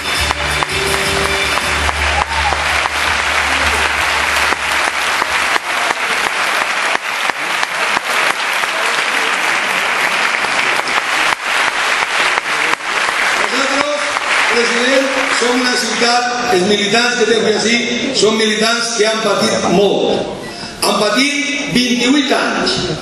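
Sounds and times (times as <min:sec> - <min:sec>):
music: 0:00.0 - 0:04.8
audience applauding: 0:00.0 - 0:16.3.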